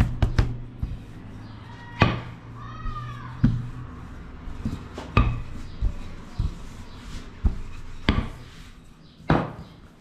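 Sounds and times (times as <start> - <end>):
rolling pin thumping on table: 3.4 - 3.7, 4.6 - 5.5, 7.4 - 8.4, 9.3 - 9.6.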